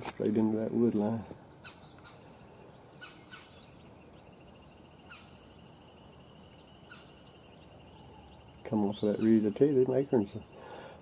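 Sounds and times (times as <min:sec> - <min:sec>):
birds chirping: 0:00.0 - 0:11.0
bird trilling: 0:00.4 - 0:11.0.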